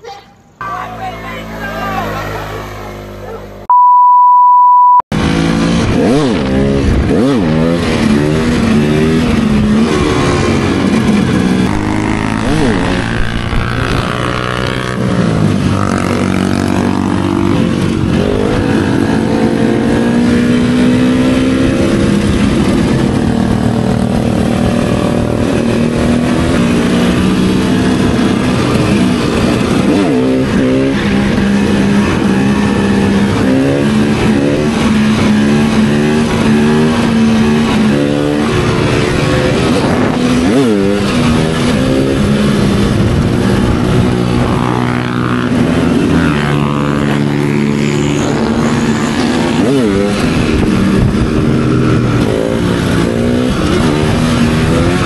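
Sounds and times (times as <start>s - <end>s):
dirt bike engines revving: 0.0s - 3.7s, 5.1s - 55.0s.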